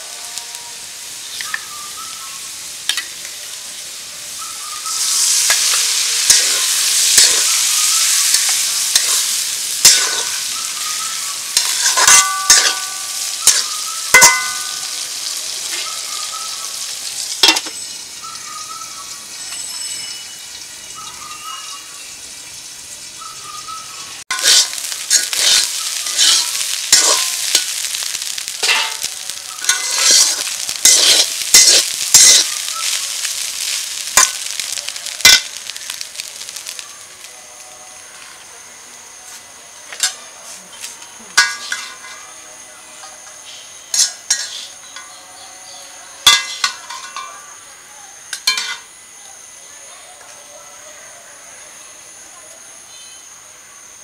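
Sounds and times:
hot oil sizzling: 0:00.0 - 0:54.0
metal spatula scraping pan: 0:05.0 - 0:10.5, 0:11.6 - 0:14.8, 0:24.3 - 0:27.8, 0:28.6 - 0:34.3, 0:41.4 - 0:42.2, 0:43.9 - 0:45.1.

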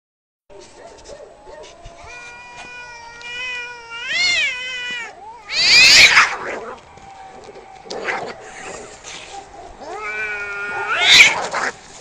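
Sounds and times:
cat caterwauling: 0:01.9 - 0:06.8, 0:09.8 - 0:11.8
cat screeching: 0:02.0 - 0:06.8, 0:09.8 - 0:11.8.

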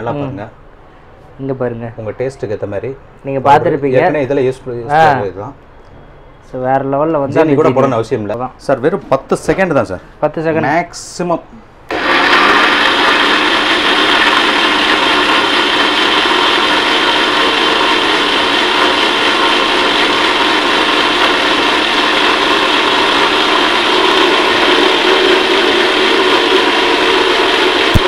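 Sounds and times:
blender motor whirring: 0:11.9 - 0:28.0.

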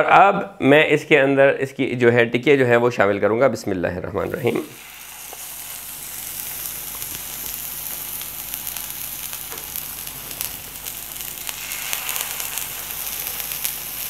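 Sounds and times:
patty sizzling in fat: 0:04.2 - 0:14.0.

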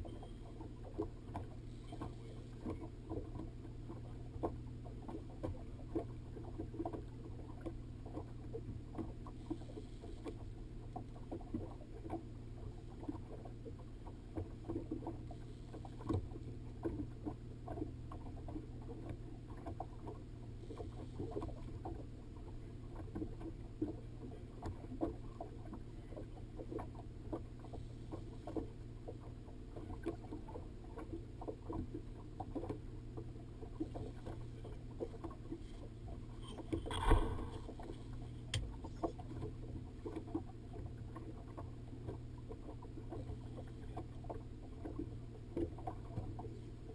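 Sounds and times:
steady low hum: 0:00.0 - 0:46.9
waves slapping against boat hull: 0:00.0 - 0:46.9.

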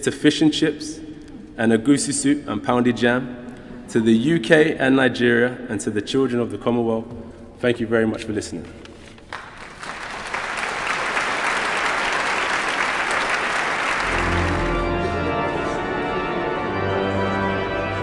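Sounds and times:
audience applauding: 0:09.3 - 0:15.0
organ playing chords: 0:11.6 - 0:18.0.

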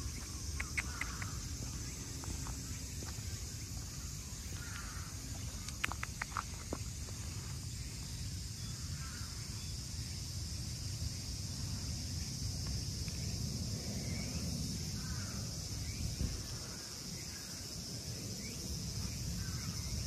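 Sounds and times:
cicadas buzzing: 0:00.0 - 0:20.0
sharp clicks: 0:00.5 - 0:01.4, 0:05.6 - 0:06.5.

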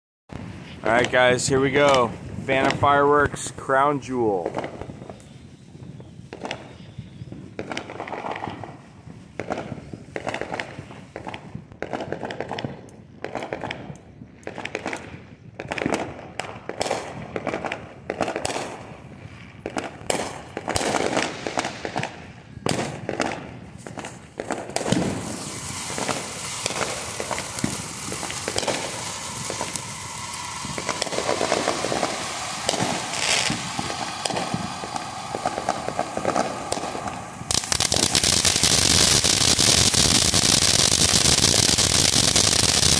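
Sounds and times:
firework fountain hissing and crackling: 0:00.3 - 0:42.9
firework pops: 0:06.3 - 0:08.8, 0:09.4 - 0:18.8, 0:19.6 - 0:42.9.

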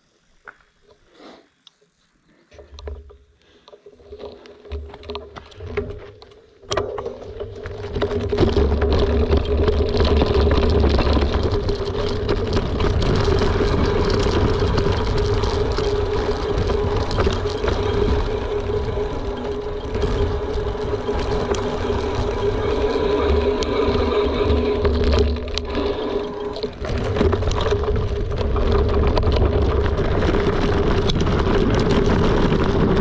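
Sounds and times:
bike rattles and clicks: 0:02.5 - 0:33.0
bike tyre noise humming: 0:03.5 - 0:33.0
wind buffeting microphone: 0:09.8 - 0:33.0.

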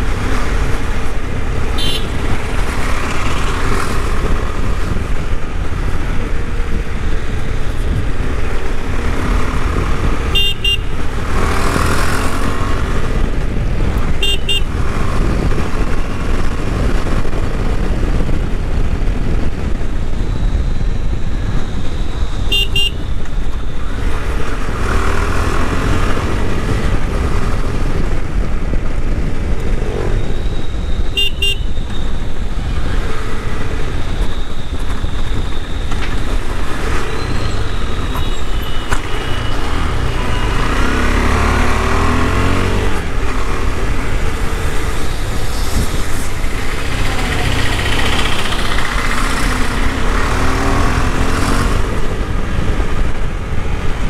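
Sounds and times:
motorcycle engine revving: 0:00.0 - 0:17.8, 0:36.2 - 0:54.0
horn toots: 0:01.7 - 0:02.3, 0:10.2 - 0:11.0, 0:14.2 - 0:14.8, 0:22.5 - 0:23.1, 0:31.1 - 0:31.9.

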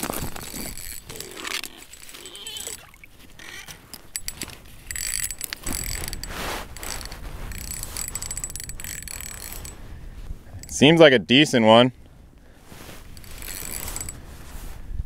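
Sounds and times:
fishing reel clicking and whirring: 0:00.0 - 0:02.8, 0:03.4 - 0:09.8, 0:13.2 - 0:14.2.

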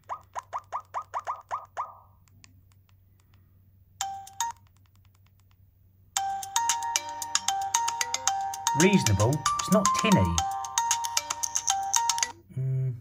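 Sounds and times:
chiming ringtone melody: 0:04.0 - 0:04.6, 0:06.2 - 0:12.4.

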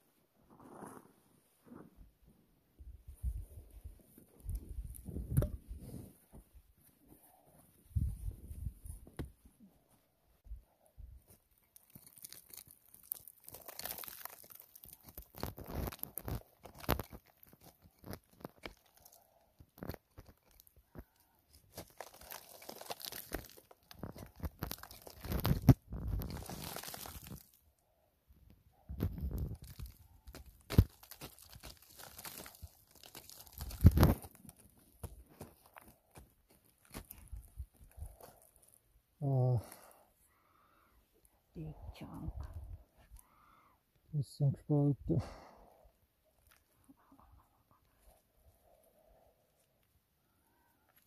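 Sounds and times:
hand tool scraping clay and rock: 0:11.3 - 0:27.4.

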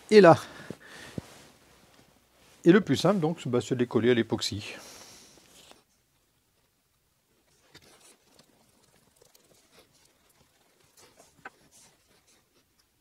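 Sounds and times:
wooden stick stirring glue: 0:07.4 - 0:13.0.

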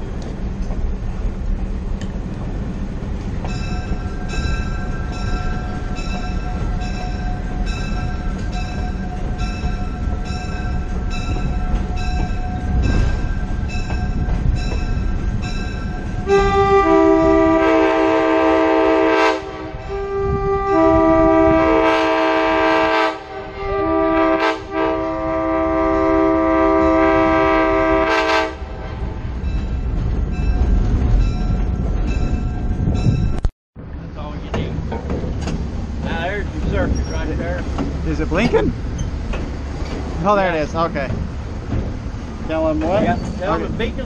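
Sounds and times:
train rumbling on rails: 0:00.0 - 0:44.0
locomotive bell ringing: 0:03.4 - 0:18.1, 0:29.3 - 0:33.4
locomotive horn blasts: 0:16.2 - 0:29.2.

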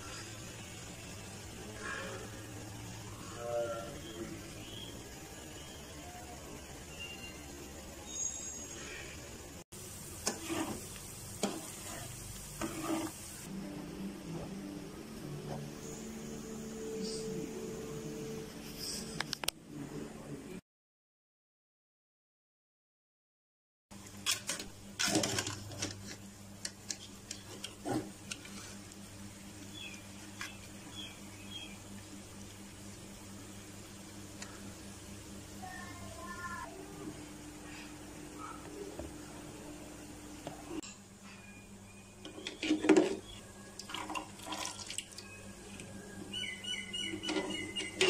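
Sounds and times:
wire strainer scraping a steel pot: 0:11.4 - 0:13.2
steady low hum: 0:24.0 - 0:42.6
liquid sloshing: 0:43.8 - 0:45.2
bird whistling: 0:46.3 - 0:48.0.

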